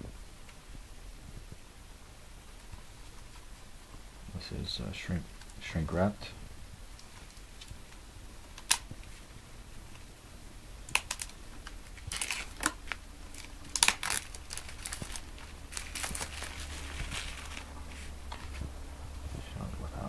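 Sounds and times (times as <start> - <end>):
plastic wrap snapping: 8.5 - 9.1, 10.8 - 18.7
plastic wrap crinkling: 10.8 - 19.4.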